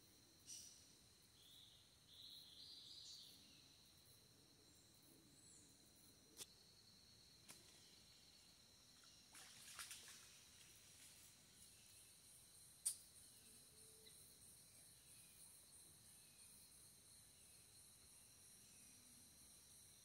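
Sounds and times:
crackling splash in river: 0:09.0 - 0:11.6.

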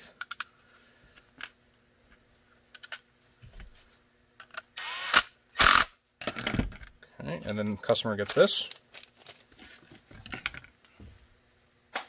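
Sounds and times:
power screwdriver running: 0:04.8 - 0:05.9.

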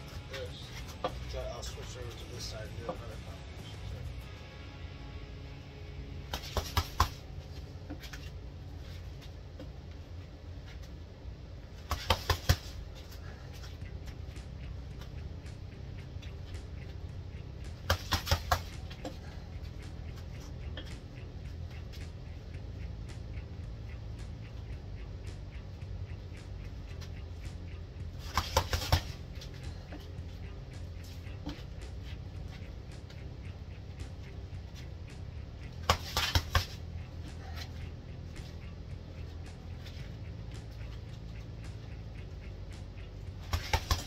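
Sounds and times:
low hum: 0:00.0 - 0:44.0
fists punching a bag: 0:06.3 - 0:07.2, 0:11.9 - 0:12.8, 0:28.2 - 0:29.2, 0:35.8 - 0:36.8, 0:43.4 - 0:44.0.

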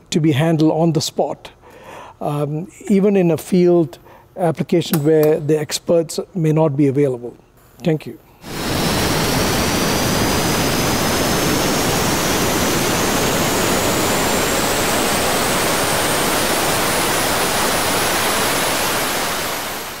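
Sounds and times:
engine running with whine: 0:08.5 - 0:20.0.

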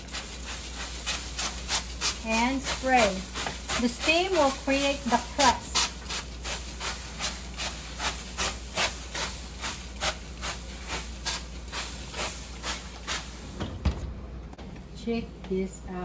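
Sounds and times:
spray bottle squirts hissing: 0:00.0 - 0:04.5.

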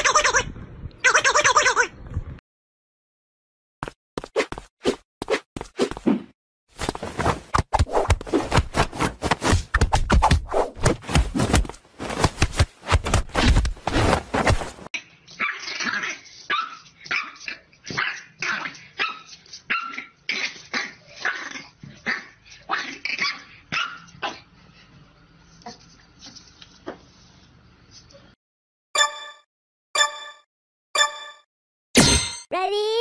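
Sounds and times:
dog barking: 0:23.2 - 0:24.4.

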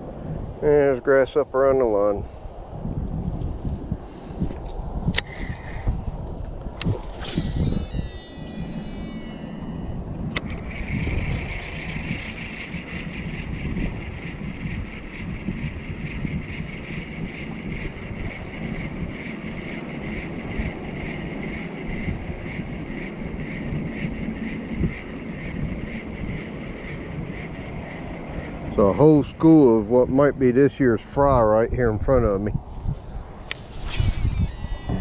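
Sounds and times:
wind rumbling on microphone: 0:00.0 - 0:35.0
fishing reel whirring: 0:05.1 - 0:28.5, 0:33.0 - 0:35.0
fishing reel click: 0:06.8 - 0:12.8, 0:33.4 - 0:35.0.

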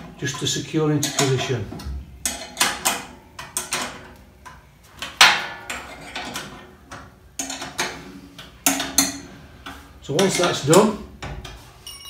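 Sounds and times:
metal spanner clinking on bolts: 0:00.2 - 0:01.6.

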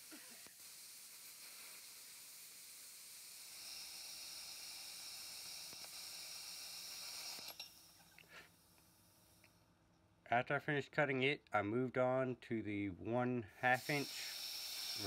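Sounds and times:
plasma cutter hissing: 0:00.0 - 0:09.4, 0:13.6 - 0:15.0.

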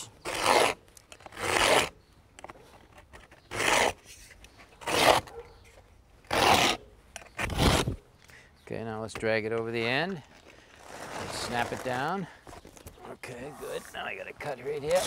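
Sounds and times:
knife scraping cement board: 0:00.2 - 0:01.9, 0:03.2 - 0:05.3, 0:06.3 - 0:06.8.

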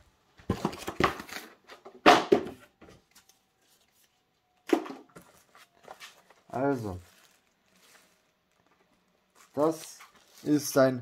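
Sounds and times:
plastic packaging rustling: 0:05.1 - 0:11.0.

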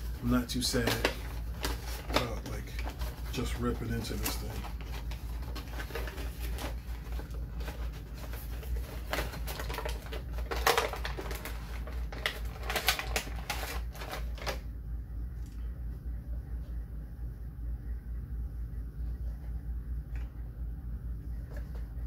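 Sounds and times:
plastic packaging crinkling: 0:00.0 - 0:14.7.

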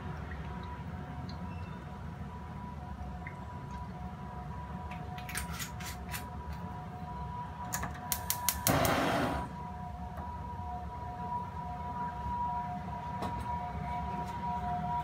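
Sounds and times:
gas flame rushing: 0:08.1 - 0:09.6.

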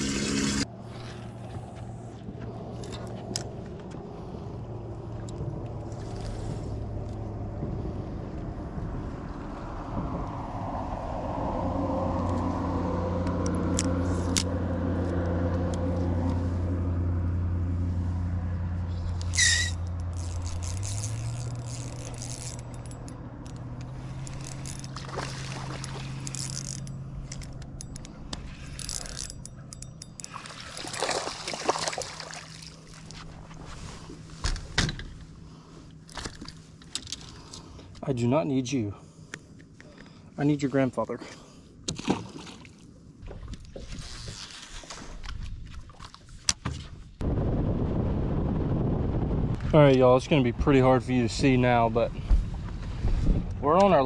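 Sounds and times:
boat motor humming: 0:00.0 - 0:10.0, 0:10.9 - 0:38.0.

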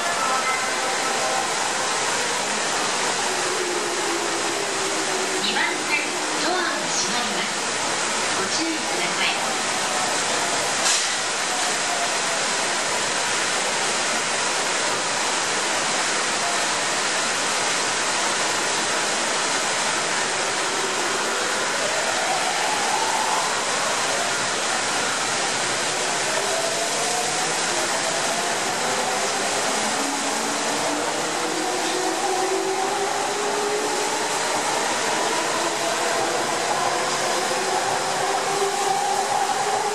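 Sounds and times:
rain water pouring from drain pipes: 0:00.0 - 0:39.9.

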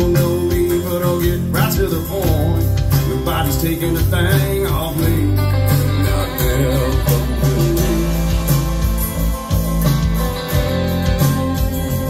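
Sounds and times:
country song with guitar and beat: 0:00.0 - 0:12.0.

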